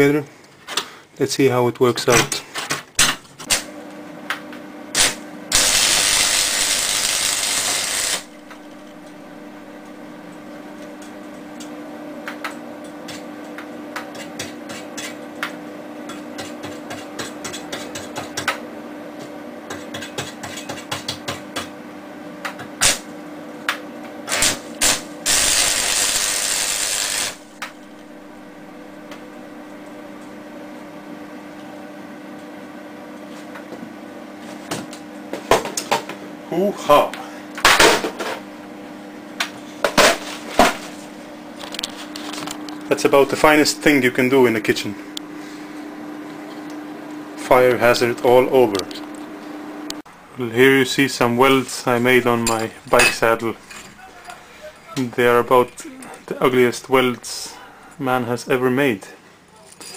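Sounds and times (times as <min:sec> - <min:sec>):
steady electrical hum: 0:00.0 - 0:59.9
welding arc crackling hiss: 0:05.0 - 0:10.0, 0:24.3 - 0:28.7.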